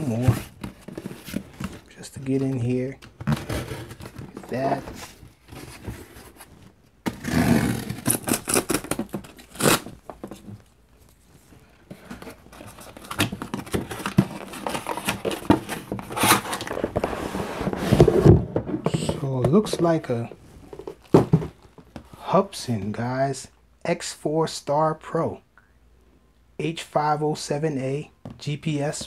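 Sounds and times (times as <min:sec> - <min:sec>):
cardboard scraping and tearing: 0:03.2 - 0:06.5, 0:07.1 - 0:09.9, 0:12.2 - 0:19.1.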